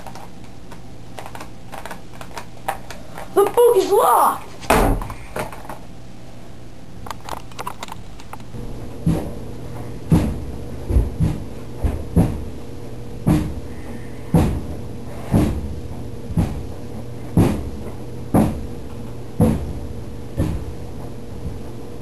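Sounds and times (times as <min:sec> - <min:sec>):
clothes dryer humming: 0:00.0 - 0:07.3, 0:08.1 - 0:22.0
sharp knocks in dryer: 0:04.7 - 0:05.2, 0:09.0 - 0:12.6, 0:13.2 - 0:13.7, 0:14.3 - 0:18.8, 0:19.4 - 0:21.7.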